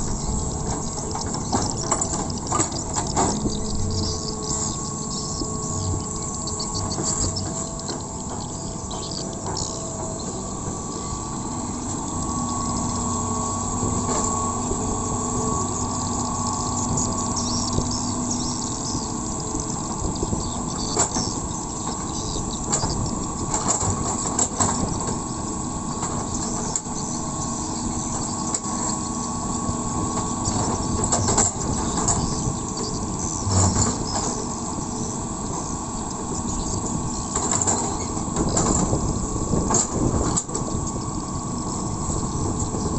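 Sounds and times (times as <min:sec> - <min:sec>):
excavator bucket clanking: 0:00.0 - 0:11.2, 0:15.4 - 0:25.3, 0:30.1 - 0:34.6, 0:37.2 - 0:41.1
excavator diesel engine running: 0:00.0 - 0:42.9.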